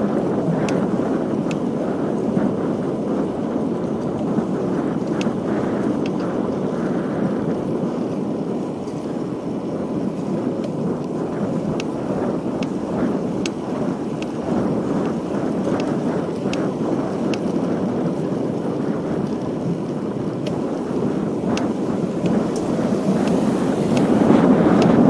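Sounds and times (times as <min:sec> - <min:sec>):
wind rushing over microphone: 0:00.0 - 0:25.0
tyre hiss on wet asphalt: 0:20.8 - 0:25.0.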